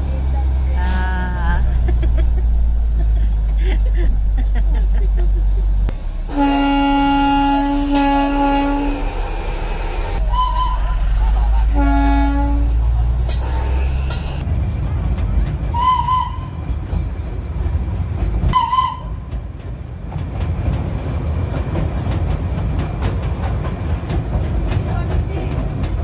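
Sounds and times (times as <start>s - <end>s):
train rumble and rattle: 0.0s - 26.0s
warbling train whistles: 6.3s - 14.2s, 15.7s - 16.7s, 18.5s - 19.3s.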